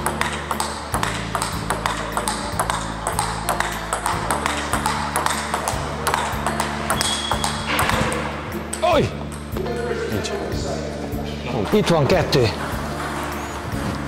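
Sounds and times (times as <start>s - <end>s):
table tennis ball clicking: 0.0s - 9.6s
background music: 0.0s - 14.0s.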